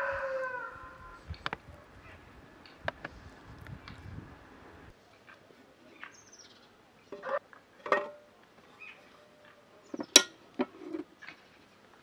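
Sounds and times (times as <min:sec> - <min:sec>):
metal grill pan knocking and clattering: 0:07.2 - 0:08.2, 0:10.0 - 0:11.0
sharp metallic clack: 0:10.0 - 0:10.4.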